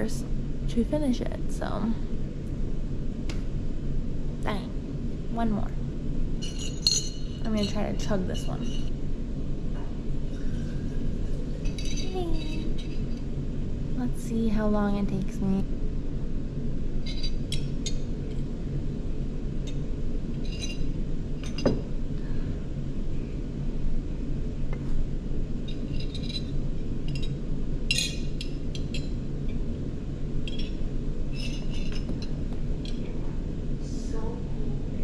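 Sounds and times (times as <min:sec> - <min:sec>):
steady low hum: 0:00.0 - 0:35.0
glass jar clinking: 0:06.4 - 0:08.9, 0:11.5 - 0:13.1, 0:20.4 - 0:21.8, 0:27.9 - 0:29.1.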